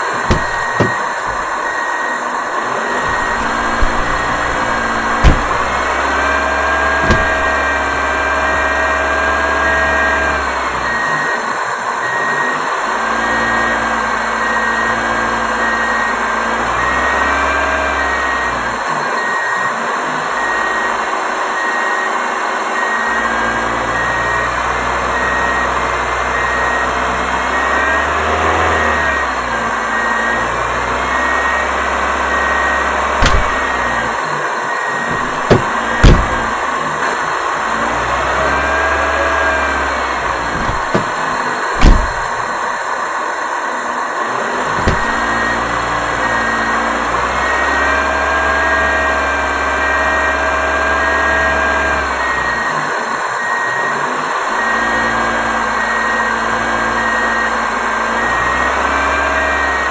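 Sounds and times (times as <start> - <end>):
faint whining tones: 0.0 - 9.0, 32.4 - 38.0, 39.6 - 42.8
machine engine drone: 0.0 - 10.6, 33.2 - 34.2, 34.8 - 42.7
sharp knock: 0.3 - 1.5, 3.1 - 5.9, 7.0 - 7.6, 33.2 - 33.7, 35.1 - 36.5, 41.8 - 42.3.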